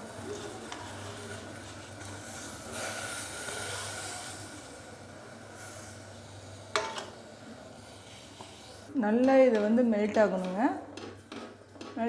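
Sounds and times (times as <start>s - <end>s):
water bubbling and hissing in saucepan: 0.0s - 9.0s.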